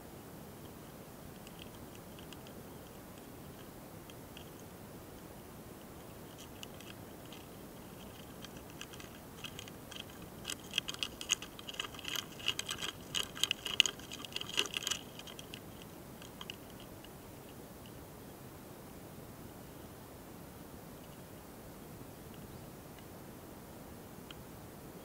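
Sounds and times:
beetles clicking and ticking: 0.6s - 4.7s, 5.8s - 18.0s.

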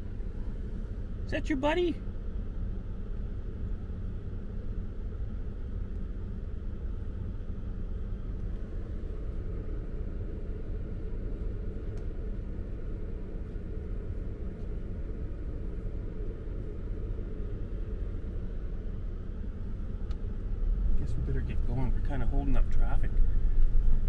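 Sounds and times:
car cabin rumble: 0.0s - 24.0s.

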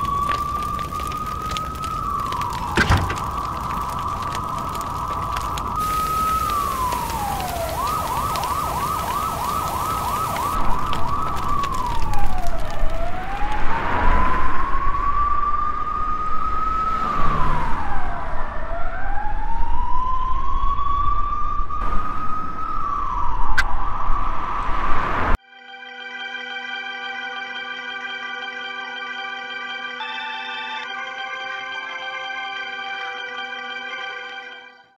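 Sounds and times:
emergency vehicle siren: 0.0s - 34.9s
rushing noise: 2.6s - 12.2s.

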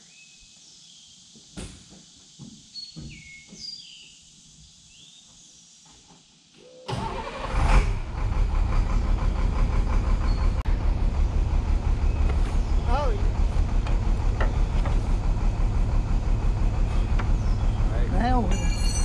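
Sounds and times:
bird chirps: 2.6s - 5.7s
truck engine running: 7.0s - 19.0s.

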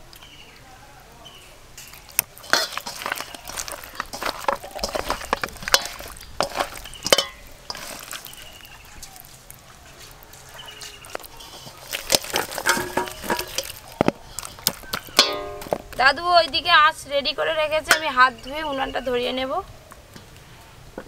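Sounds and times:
wet squelches of hand mixing: 1.8s - 16.2s
light clinks against steel bowl: 2.5s - 8.6s, 15.1s - 15.9s.

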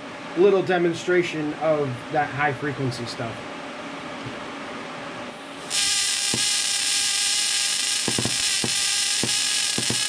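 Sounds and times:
welding arc buzzing hiss: 5.3s - 10.0s
sharp arc snaps: 5.6s - 10.0s.

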